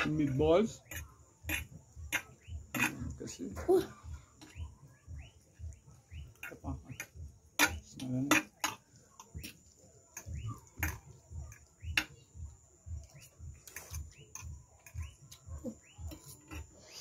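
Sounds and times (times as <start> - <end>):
low thumping beat: 0.0 - 17.0
wet chewing and lip smacks: 4.4 - 17.0.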